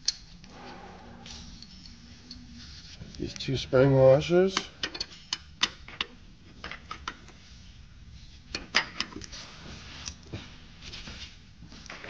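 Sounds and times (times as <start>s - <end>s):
metal hardware clicking and clinking: 4.6s - 6.1s.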